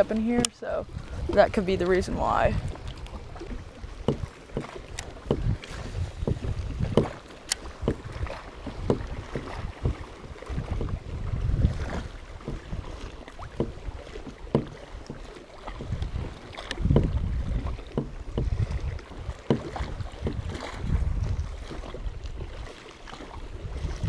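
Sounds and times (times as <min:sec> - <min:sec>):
waves slapping a hull: 0:00.0 - 0:24.0
wind buffeting microphone: 0:00.0 - 0:24.0
short knocks and taps: 0:06.2 - 0:07.2, 0:14.5 - 0:15.2.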